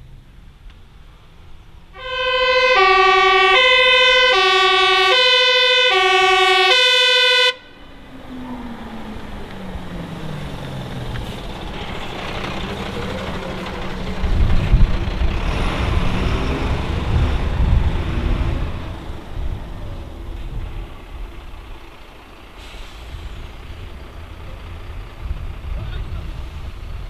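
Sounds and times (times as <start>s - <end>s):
truck engine: 0.0s - 27.0s
two-tone fire engine siren: 2.0s - 11.5s.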